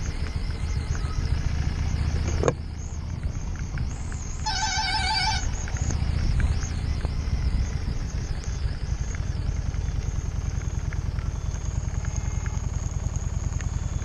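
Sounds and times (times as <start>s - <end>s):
motorcycle engine rumble: 0.0s - 14.0s
high-pitched pulsing call: 4.4s - 8.0s.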